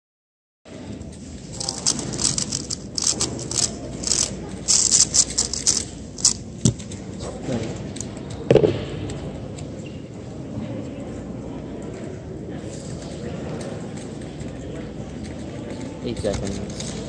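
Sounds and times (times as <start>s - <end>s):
murmur of voices: 0.7s - 17.0s
plastic puzzle cube clicking: 1.5s - 6.8s.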